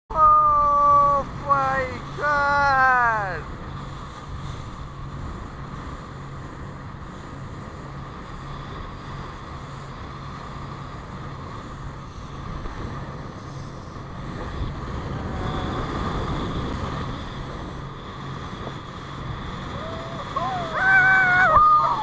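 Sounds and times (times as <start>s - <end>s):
motorboat engine running: 0.1s - 22.0s
water rushing past hull: 0.1s - 22.0s
wind buffeting microphone: 0.6s - 22.0s.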